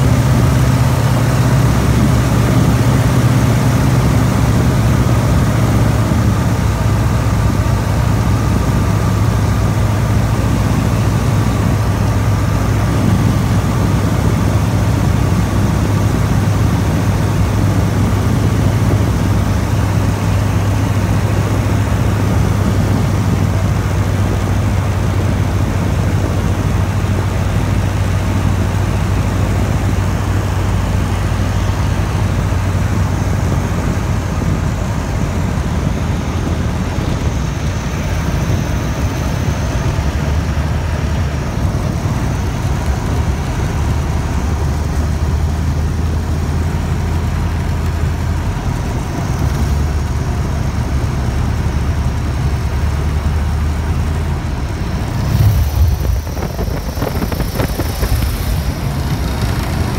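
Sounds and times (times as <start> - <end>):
light aircraft engine droning: 0.0 - 59.9
wind rushing past: 54.4 - 59.9.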